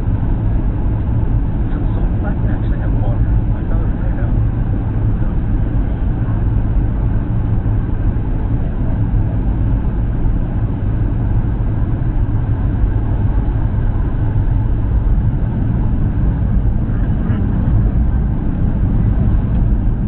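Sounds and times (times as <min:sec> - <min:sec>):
jet cabin engine hum: 0:00.0 - 0:20.0.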